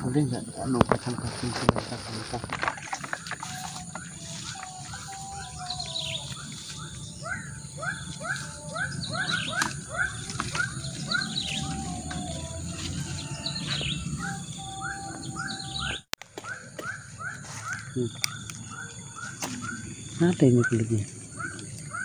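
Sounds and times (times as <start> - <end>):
bird chirps: 1.6 - 22.0.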